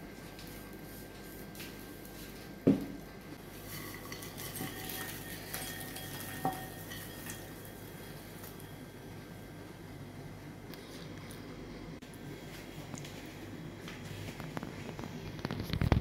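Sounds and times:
popcorn rustling into bowl: 3.4 - 9.0, 14.0 - 16.0
cookware clanking: 3.7 - 8.6
metal pan clinking bowl: 3.7 - 8.6.

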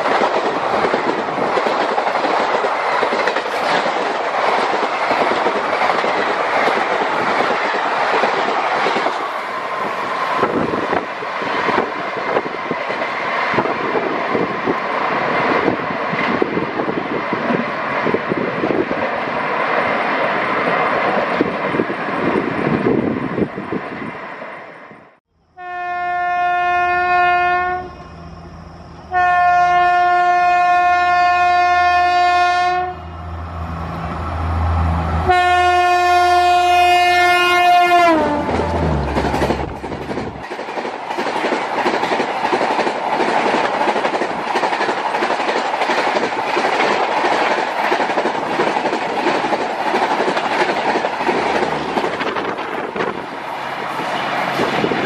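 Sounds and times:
train wheels clattering: 0.0 - 9.4, 38.4 - 53.3
low train rumble: 0.0 - 55.0
train horn blasts: 25.5 - 28.2, 29.1 - 33.4, 34.6 - 39.0.

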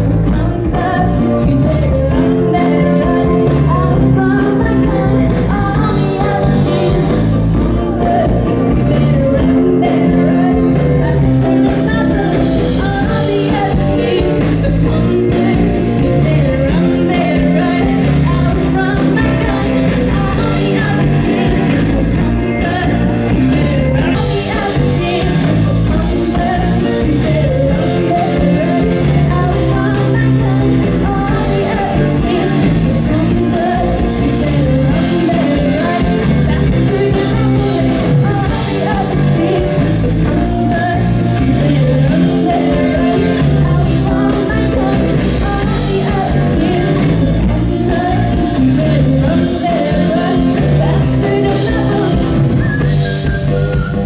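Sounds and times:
live rock band: 0.0 - 54.0
woman singing: 0.0 - 54.0.

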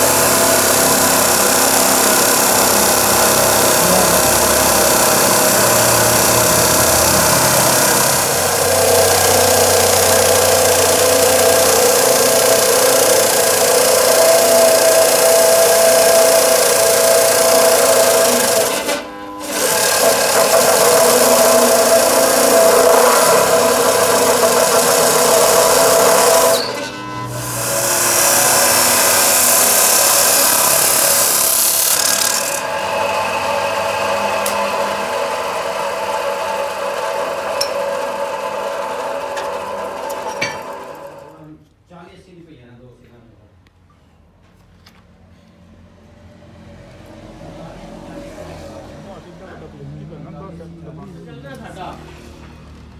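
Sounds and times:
saw grinding through metal: 0.0 - 41.4
saw motor running: 0.0 - 41.4.

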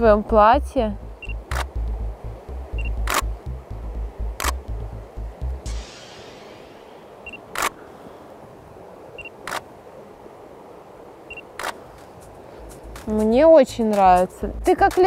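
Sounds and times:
low rumble: 0.0 - 7.7
autofocus beep: 1.2 - 1.7, 2.7 - 3.2, 7.2 - 7.7, 9.2 - 9.6, 11.3 - 11.7
camera shutter clicks: 3.0 - 3.3, 4.4 - 4.6, 7.5 - 7.8, 9.4 - 9.6, 11.6 - 11.8.

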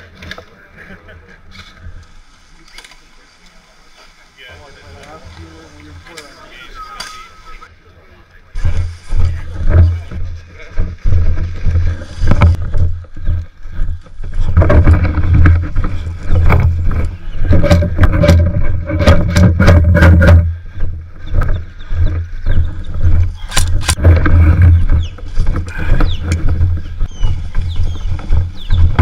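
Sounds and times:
wind rumble: 8.6 - 29.0
camera handling noise: 23.4 - 24.0
sharp clicks: 23.4 - 24.0.

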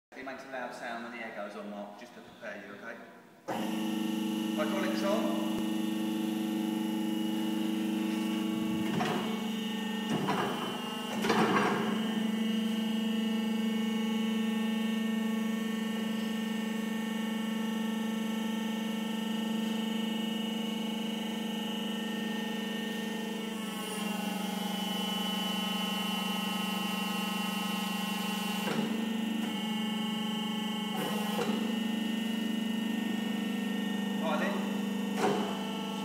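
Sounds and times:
hydraulic pump humming: 3.5 - 36.0
machine clunks: 35.1 - 35.7.

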